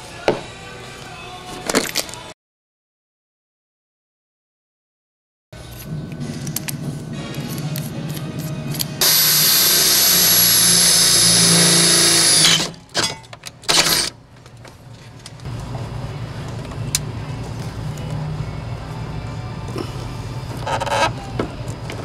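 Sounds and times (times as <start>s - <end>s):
cordless drill whining: 9.0s - 12.7s, 13.7s - 14.1s.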